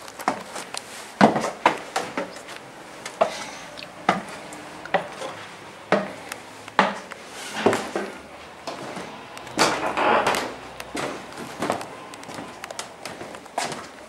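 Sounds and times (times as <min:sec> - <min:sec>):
footsteps on wooden floor: 0:08.7 - 0:14.0.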